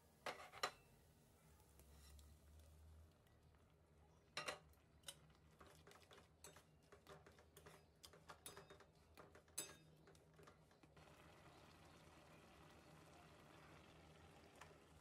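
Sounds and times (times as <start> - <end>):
spatula stirring in metal pan: 5.0 - 10.6.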